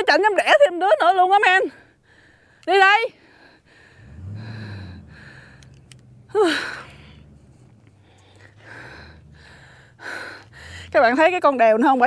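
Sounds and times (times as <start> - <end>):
woman breathing hard: 1.8 - 11.0
woman gasping: 3.2 - 11.0.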